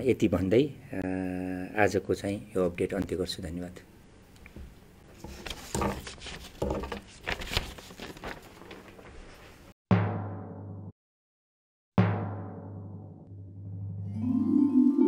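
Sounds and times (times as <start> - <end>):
papers rustling: 4.6 - 9.7
loud drum hit: 9.9 - 10.9, 12.0 - 14.2.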